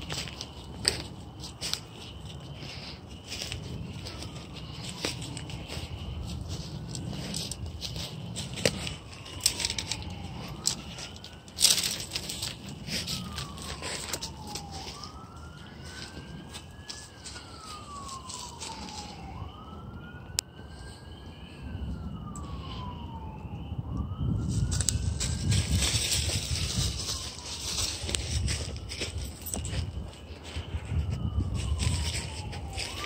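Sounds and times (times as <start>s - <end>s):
siren wailing: 0.0s - 33.0s
clicks and crackles: 3.3s - 15.1s.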